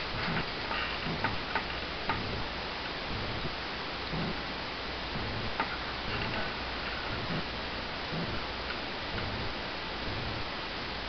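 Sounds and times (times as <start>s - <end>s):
steady background hiss: 0.0s - 11.0s
soft low handling knocks: 0.1s - 2.5s.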